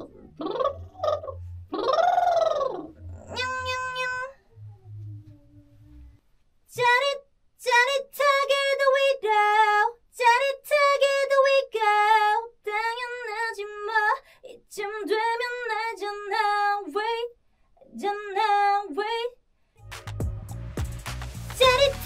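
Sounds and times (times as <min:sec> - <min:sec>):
woman lip trill: 0:00.0 - 0:05.5.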